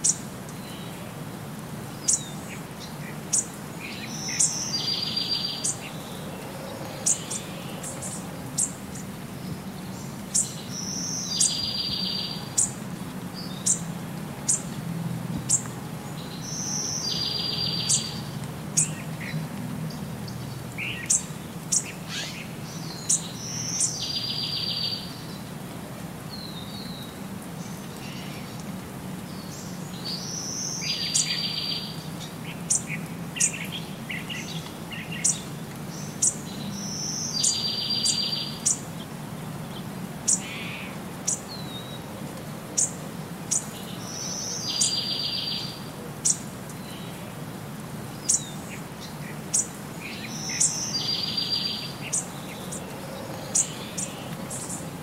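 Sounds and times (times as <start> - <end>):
birds chirping: 1.9 - 12.8, 15.4 - 25.5, 29.3 - 42.1, 42.8 - 47.4, 48.1 - 55.0.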